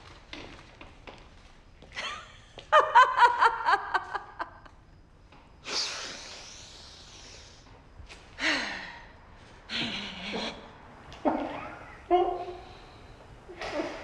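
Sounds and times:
woman laughing loudly: 2.0 - 4.7.

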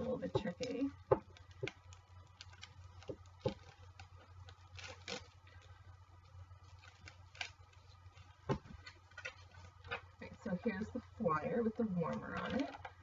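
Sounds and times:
paper rustling: 1.5 - 5.8, 6.6 - 10.1.

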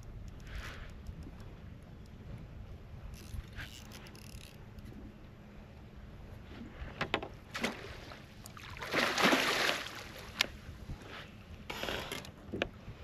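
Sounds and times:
water splashing: 7.5 - 10.3.

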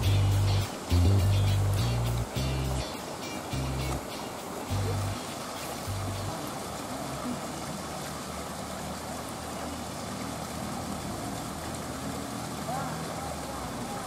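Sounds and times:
low bass notes of music: 0.0 - 4.1, 4.7 - 5.2, 5.8 - 6.4
water pouring from pipe into pond: 0.0 - 14.0.

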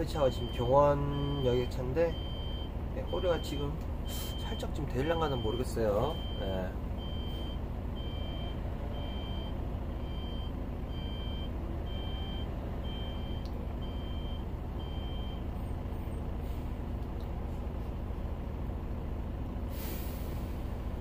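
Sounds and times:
bus engines idling: 0.0 - 21.0
reversing alarm beeping: 0.2 - 15.4.

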